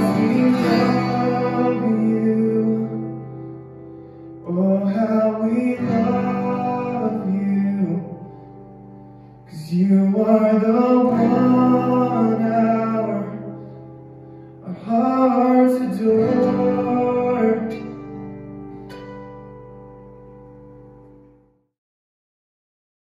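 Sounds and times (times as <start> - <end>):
person singing: 0.0 - 3.8, 4.4 - 8.4, 9.5 - 13.7, 14.6 - 18.2
guitar: 0.0 - 21.6.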